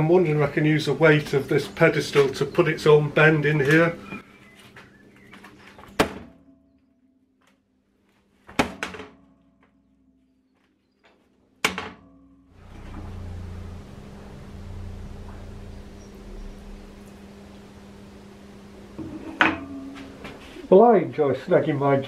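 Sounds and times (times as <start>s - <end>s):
steel pedestal thunking on plate: 19.0s - 20.2s.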